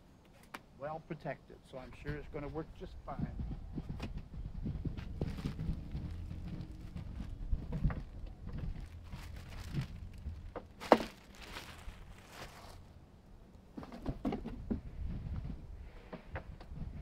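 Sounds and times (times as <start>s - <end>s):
knocks and clatter: 3.2s - 11.6s, 13.7s - 14.9s
plastic wrap and foam rustling: 5.0s - 12.9s.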